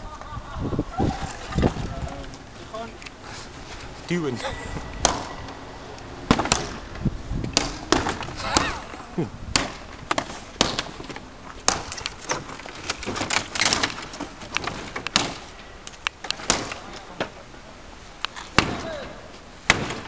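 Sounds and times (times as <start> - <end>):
wooden slats cracking: 5.0 - 5.6, 6.3 - 17.4, 18.3 - 20.0.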